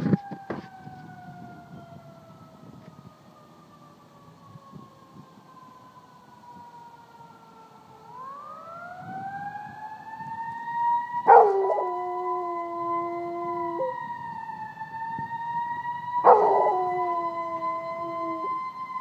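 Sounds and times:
emergency vehicle siren wailing: 0.0s - 19.0s
dog howling: 11.3s - 14.0s, 16.2s - 18.6s.

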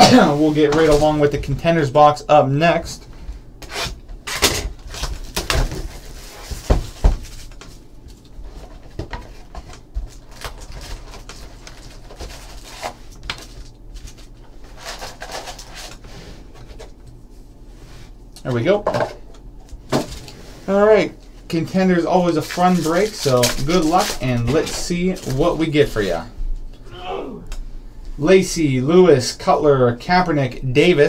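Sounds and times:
foil card packs rustling: 3.6s - 17.0s, 21.0s - 26.3s.

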